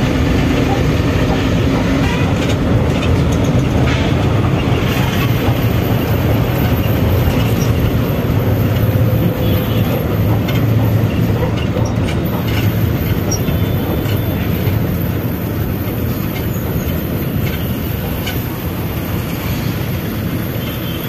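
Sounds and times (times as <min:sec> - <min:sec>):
bus engine drone: 0:00.0 - 0:21.0
road rumble: 0:00.0 - 0:21.0.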